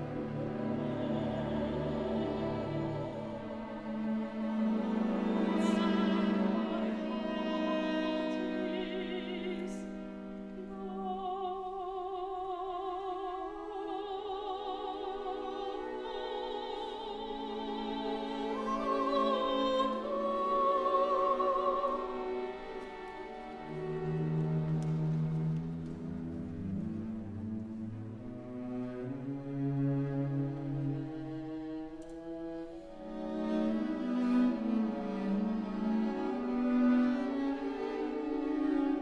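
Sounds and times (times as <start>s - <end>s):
soprano singing with vibrato: 0.0s - 23.9s
string orchestra: 0.0s - 39.0s.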